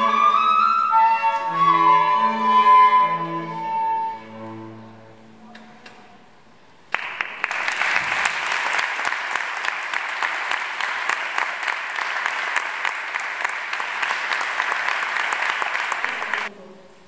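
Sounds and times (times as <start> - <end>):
audience applauding: 6.9 - 16.5.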